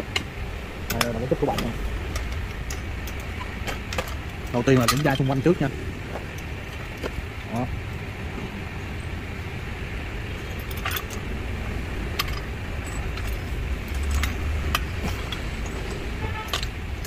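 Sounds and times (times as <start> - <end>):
steady low rumble: 0.0 - 17.0
metallic clinks and rattles: 0.9 - 7.1, 10.3 - 17.0.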